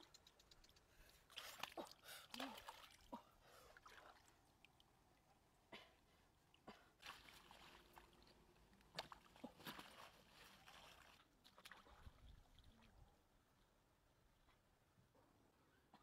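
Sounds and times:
water sloshing around wader: 0.9 - 13.2.

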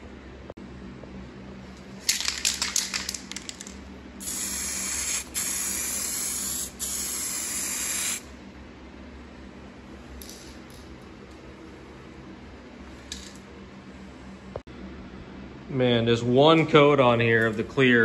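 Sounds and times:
aerosol can rattling: 2.1 - 5.5
spray hiss: 4.2 - 8.2.

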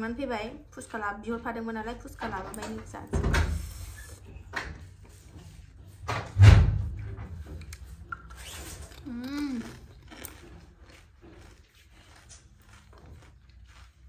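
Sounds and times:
chewing food: 7.4 - 14.0
person humming with full mouth: 9.0 - 9.8.

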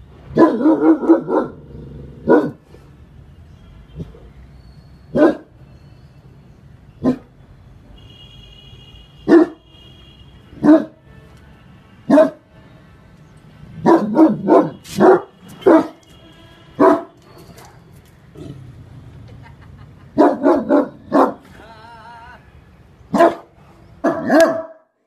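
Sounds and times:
large dog barking: 0.3 - 2.6, 5.1 - 5.5, 9.2 - 9.6, 10.6 - 11.0, 12.1 - 12.4, 13.8 - 16.0, 16.8 - 17.8, 20.2 - 21.5, 23.1 - 24.9.

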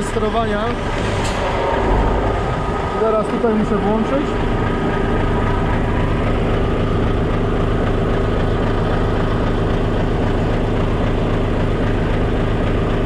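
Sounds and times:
truck diesel engine idling: 4.2 - 13.0.

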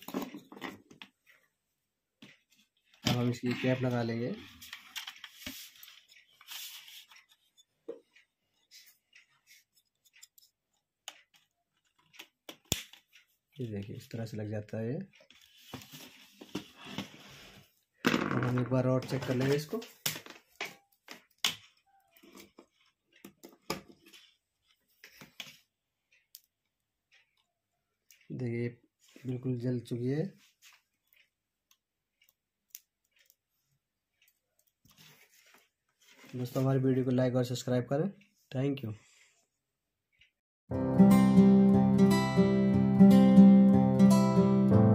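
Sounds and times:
wires and plastic clicking: 2.2 - 17.1, 18.8 - 37.0.

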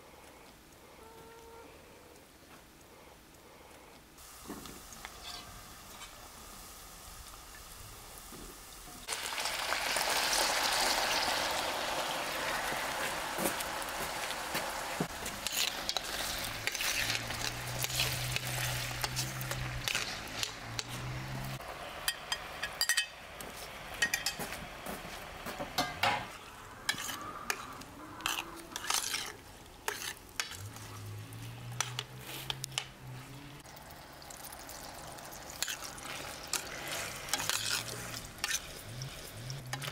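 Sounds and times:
potatoes sizzling in hot oil: 4.2 - 24.6, 33.6 - 39.9
metal spoon clinking against pan: 22.1 - 23.2, 24.0 - 24.4.

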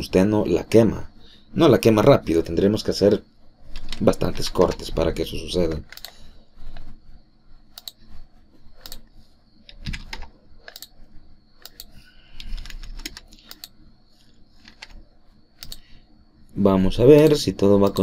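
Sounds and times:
keyboard typing: 3.6 - 5.0, 5.6 - 7.0, 7.7 - 11.0, 11.6 - 15.0, 15.6 - 15.8
mouse clicks: 7.7 - 8.0, 8.8 - 9.0, 9.7 - 11.0, 11.6 - 13.8, 15.6 - 15.9.

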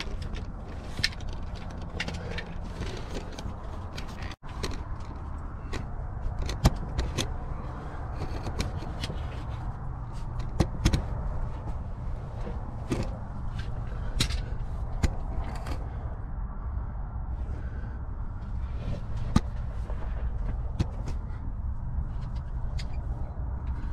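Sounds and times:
clicks and scrapes: 0.0 - 16.0
steady low rumble: 0.0 - 23.9.

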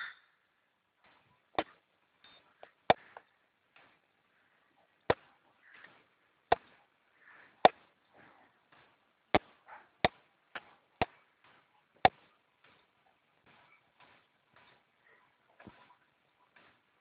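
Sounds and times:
sharp short knocks: 5.1 - 6.8.

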